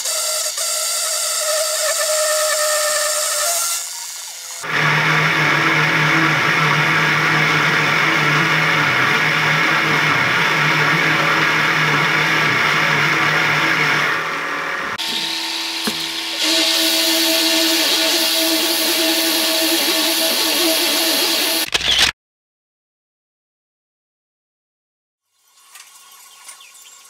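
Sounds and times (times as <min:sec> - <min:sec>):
end mill grinding steel: 0:01.3 - 0:21.7
milling machine motor hum: 0:04.0 - 0:21.7.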